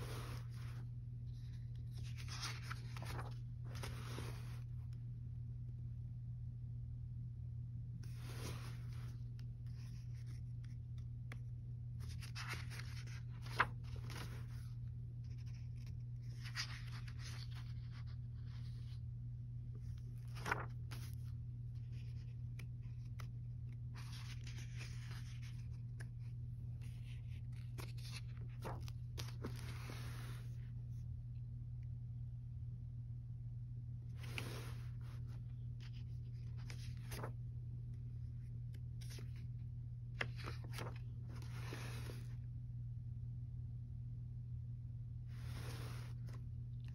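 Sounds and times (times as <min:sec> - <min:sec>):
paper pages rustling: 0:00.0 - 0:05.0, 0:08.0 - 0:19.1, 0:19.7 - 0:30.6, 0:34.1 - 0:42.4, 0:45.3 - 0:46.9
steady low hum: 0:00.0 - 0:46.9.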